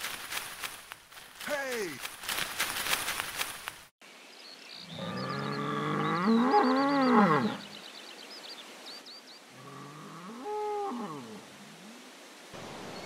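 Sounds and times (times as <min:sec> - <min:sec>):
cow mooing: 0:05.0 - 0:07.6.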